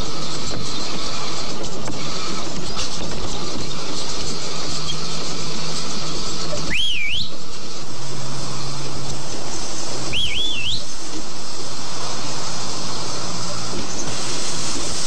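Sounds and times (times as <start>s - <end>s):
steady vehicle noise: 0.0s - 15.0s
man whistling: 6.6s - 7.4s, 10.1s - 10.9s.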